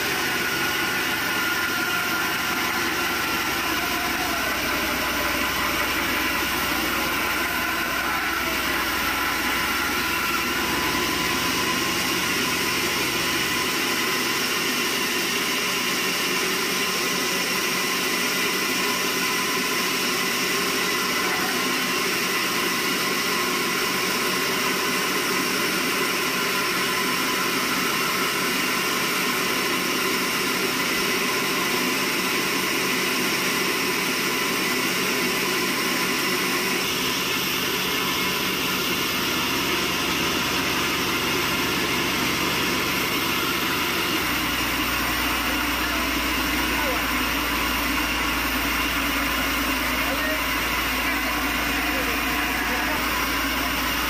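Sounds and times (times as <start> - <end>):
band saw cutting log: 0.0 - 18.2, 34.6 - 54.0.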